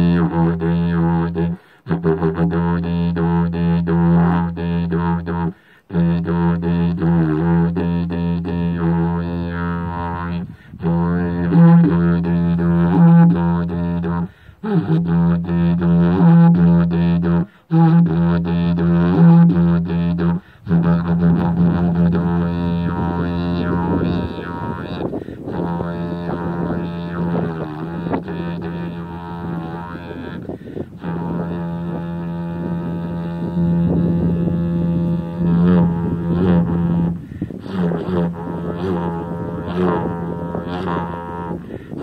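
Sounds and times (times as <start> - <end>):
didgeridoo drone: 0.0 - 42.0.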